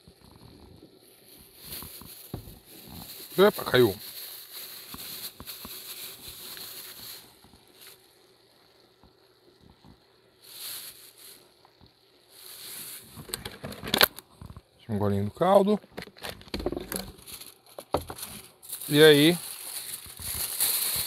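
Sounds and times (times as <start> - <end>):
rice and broth simmering in a pan: 0.0 - 14.7
crackling and bubbling hiss: 0.0 - 21.0.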